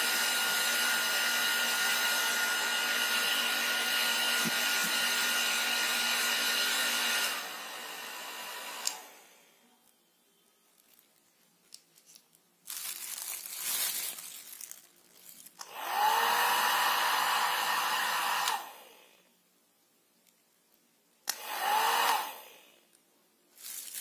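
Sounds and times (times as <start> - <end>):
hair dryer blowing: 0.0 - 9.5, 15.6 - 19.2, 21.3 - 22.8.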